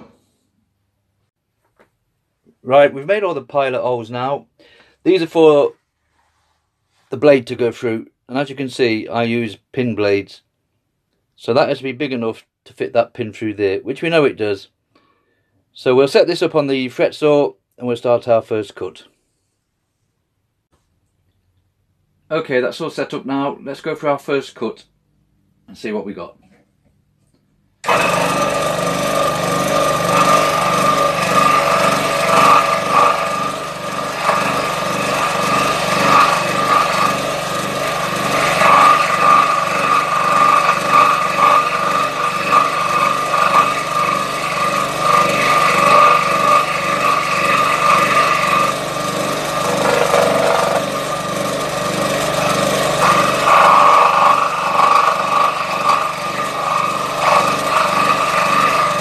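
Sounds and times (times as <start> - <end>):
scroll saw blade chatter: 27.8 - 59.0.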